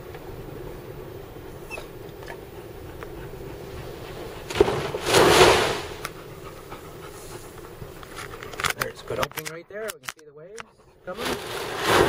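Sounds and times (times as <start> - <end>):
seawater rushing over windshield: 1.1 - 6.2.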